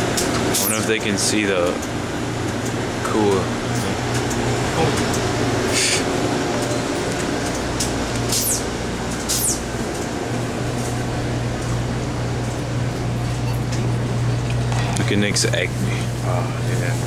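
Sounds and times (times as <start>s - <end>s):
noisy wash: 0.0s - 13.2s
low mechanical hum: 0.0s - 17.0s
brief high swishes: 8.3s - 8.7s, 9.3s - 9.7s.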